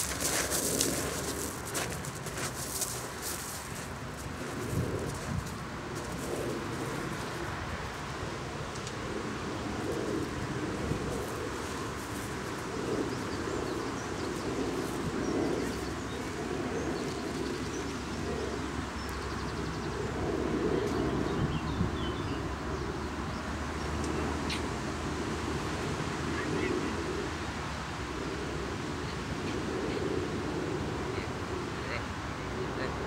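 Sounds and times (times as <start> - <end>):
small birds chirping: 11.2 - 20.1.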